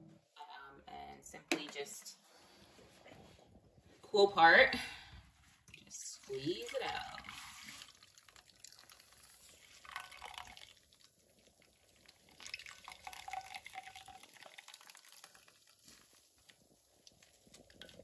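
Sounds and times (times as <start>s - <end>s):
juice dripping into a cup: 5.6s - 18.0s.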